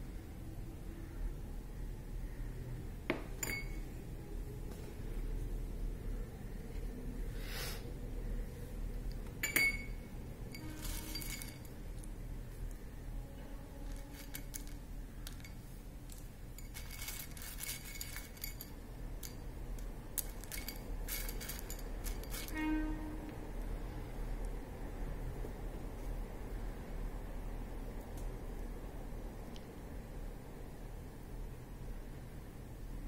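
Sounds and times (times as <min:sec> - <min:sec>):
glassware and utensils clinking: 0:03.4 - 0:03.9, 0:09.4 - 0:11.8, 0:13.9 - 0:15.6, 0:16.5 - 0:19.4, 0:20.2 - 0:22.6.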